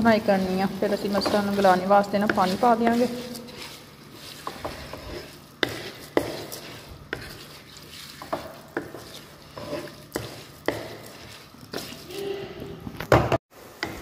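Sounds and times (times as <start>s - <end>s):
lentils sizzling: 0.0s - 12.6s
wooden spatula scraping a pan: 0.0s - 12.8s.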